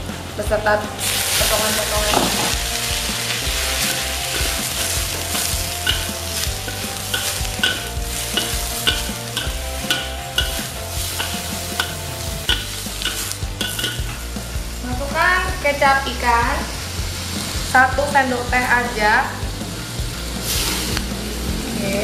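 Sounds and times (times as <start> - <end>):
food sizzling in hot oil: 0.8 - 22.0
spatula scraping a wok: 1.0 - 14.8, 19.6 - 22.0.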